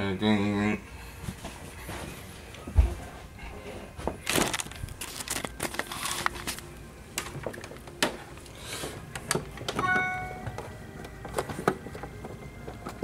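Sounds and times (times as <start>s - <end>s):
cables and plastic fittings handled: 4.2s - 8.5s.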